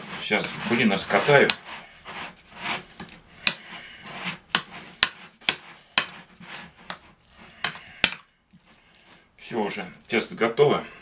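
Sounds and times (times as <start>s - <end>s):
soft stirring: 0.0s - 11.0s.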